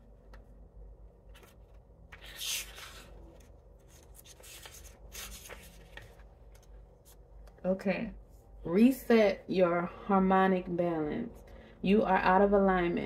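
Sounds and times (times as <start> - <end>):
paper rustling: 1.2 - 7.2.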